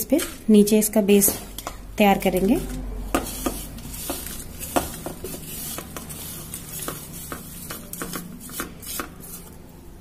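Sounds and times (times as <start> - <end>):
spatula scraping a plate: 0.0 - 9.6
spatula tapping plate and tin: 1.2 - 9.2.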